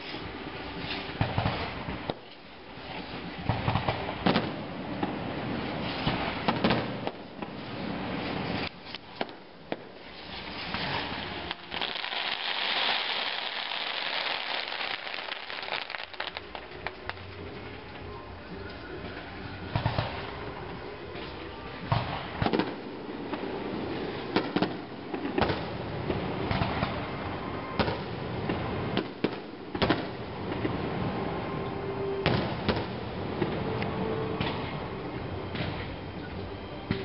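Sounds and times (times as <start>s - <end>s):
firework crackling: 0.0s - 18.1s, 19.0s - 31.4s, 32.0s - 36.0s
firework bangs: 0.8s - 2.3s, 3.3s - 16.9s, 19.7s - 20.3s, 21.8s - 31.0s, 32.2s - 33.6s.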